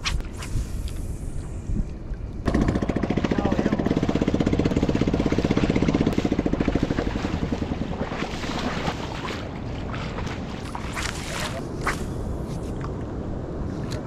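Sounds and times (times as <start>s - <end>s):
wind and water rushing: 0.0s - 14.0s
small boat engine running: 2.4s - 11.2s.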